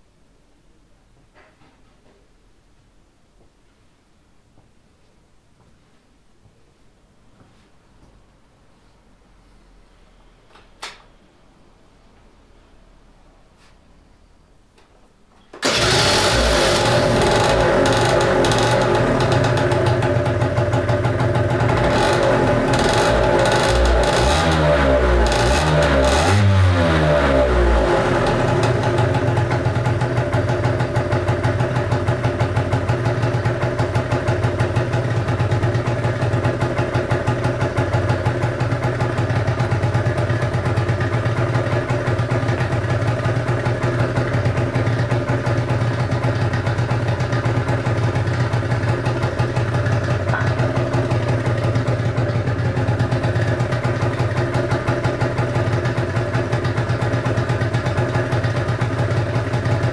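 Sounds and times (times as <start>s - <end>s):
scooter engine idling: 15.6s - 26.3s, 27.4s - 59.9s.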